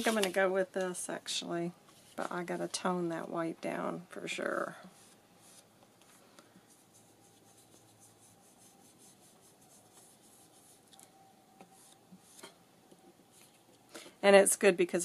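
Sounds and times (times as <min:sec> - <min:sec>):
brush swishing on paper: 0:04.9 - 0:10.9, 0:11.6 - 0:12.5.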